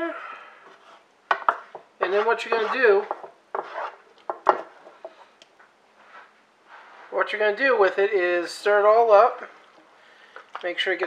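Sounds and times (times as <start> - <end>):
spoon knocking and scraping pan: 0.8 - 5.2.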